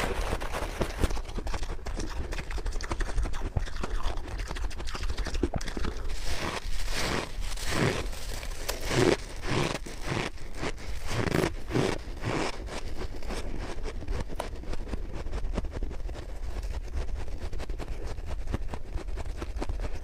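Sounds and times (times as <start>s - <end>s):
frost being chewed crunching: 0.0s - 20.0s
fine crackling of frost: 5.6s - 16.9s.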